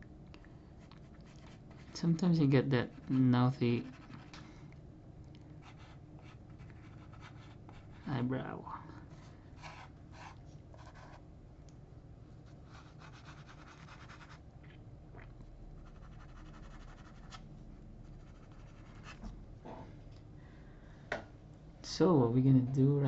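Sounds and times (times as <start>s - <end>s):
pencil scratching on paper: 2.8s - 4.4s, 5.6s - 8.1s, 9.6s - 11.2s, 12.7s - 14.4s, 18.2s - 19.2s.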